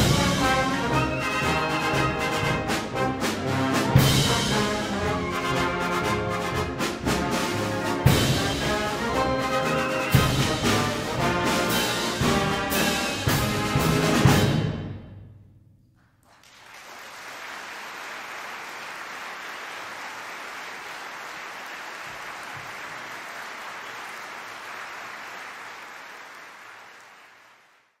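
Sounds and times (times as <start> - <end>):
concert audience applauding: 16.0 - 28.0.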